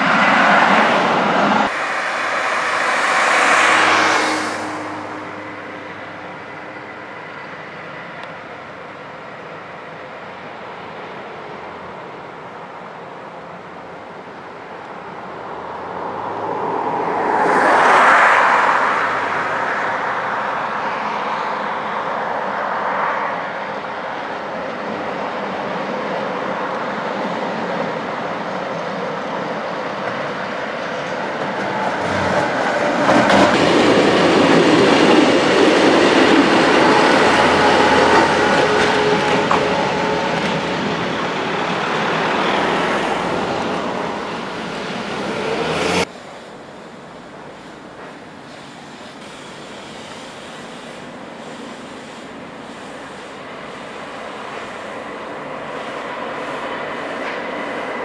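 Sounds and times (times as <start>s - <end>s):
train wheels clattering on rails: 29.9s - 45.3s, 47.4s - 58.0s.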